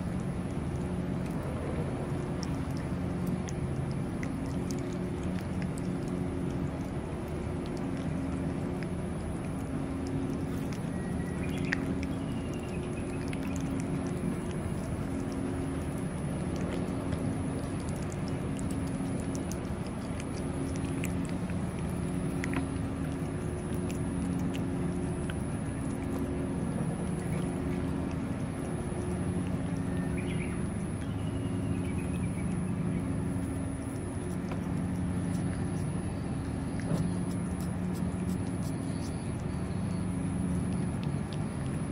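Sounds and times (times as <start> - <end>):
cat chewing and lapping: 0.0 - 41.9
low mechanical hum: 0.0 - 41.9
faint bird chirps: 10.8 - 13.8, 29.7 - 33.2, 38.6 - 40.8.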